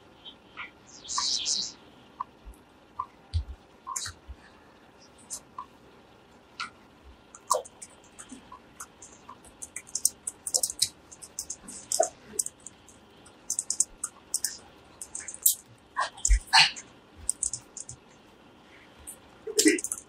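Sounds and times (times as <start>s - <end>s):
typing on laptop keyboard: 7.4s - 16.5s, 17.2s - 18.0s, 19.6s - 20.0s.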